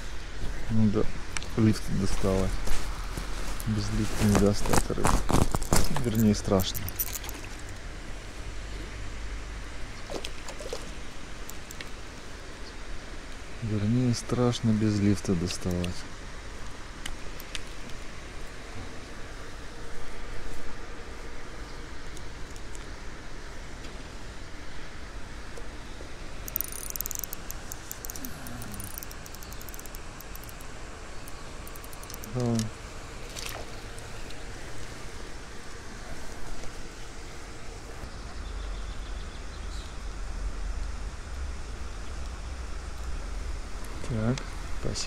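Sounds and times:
low rumble and hiss outdoors: 0.0 - 45.0
rustling of fishing gear: 1.5 - 7.8, 26.4 - 35.3
light high clicks: 26.4 - 32.8.

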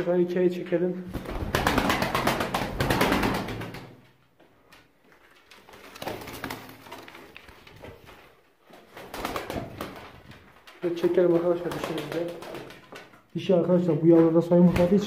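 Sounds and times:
wings flapping and rustling: 1.1 - 4.0, 5.2 - 13.2.

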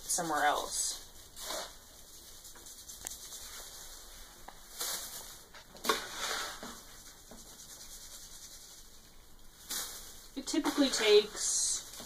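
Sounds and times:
scoop scraping cat litter: 0.4 - 1.8, 4.7 - 8.6.

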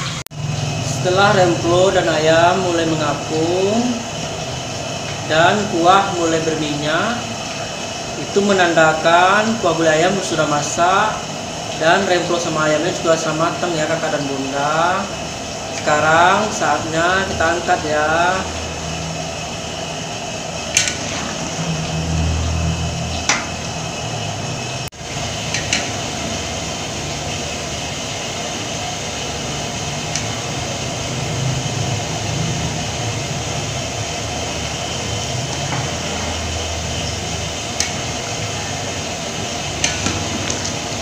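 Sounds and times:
curry simmering with rushing noise: 0.0 - 41.0.

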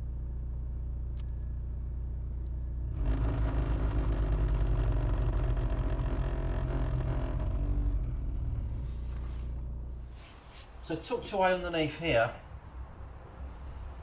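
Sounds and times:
low steady hum: 0.0 - 10.9
heater blower fan rough fluttering: 2.9 - 7.8.

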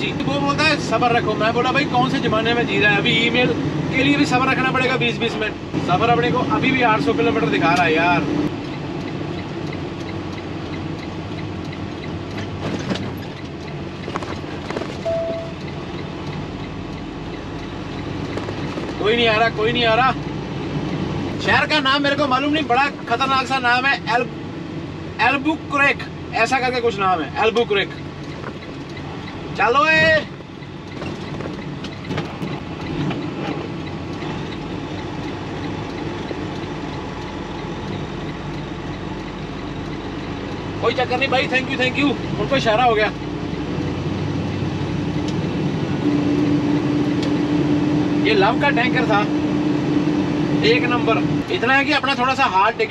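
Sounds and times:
diesel truck engine running: 0.0 - 52.9
short single-tone beep: 15.0 - 15.6
truck diesel engine running: 28.0 - 42.4.

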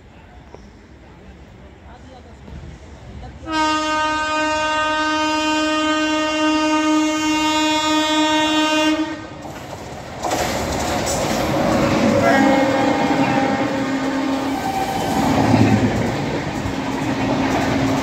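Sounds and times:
locomotive horn blast: 3.5 - 9.4, 12.0 - 15.6
train rushing past: 7.9 - 18.0.

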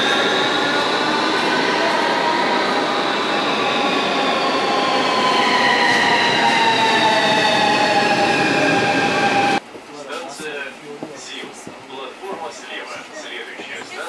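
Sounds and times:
train whining tones: 0.0 - 9.6
electric train on rails: 0.0 - 14.0.

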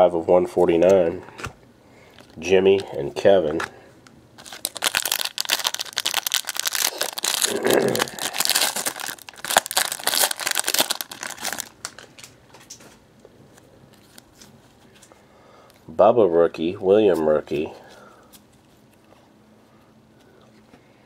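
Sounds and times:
foil wrapper crinkling and tearing: 4.4 - 12.8.

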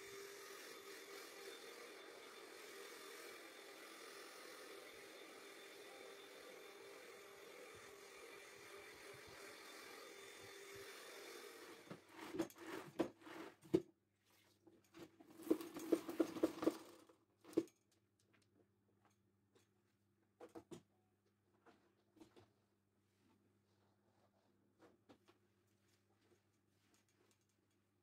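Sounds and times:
handheld vacuum cleaner running: 0.0 - 12.8, 15.4 - 16.9
knocks and clatters: 15.3 - 17.8.

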